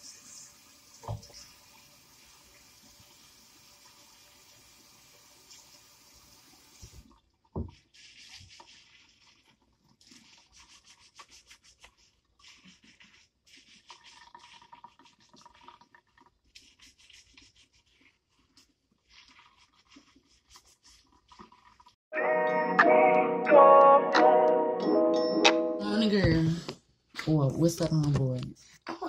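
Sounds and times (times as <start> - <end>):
hands scrubbing wet hair: 7.0 - 22.0.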